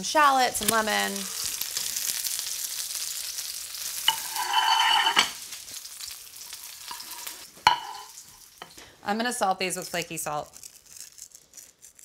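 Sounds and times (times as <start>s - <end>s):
cutlets sizzling in hot oil: 0.0s - 12.0s
ringing scrape: 4.1s - 5.3s.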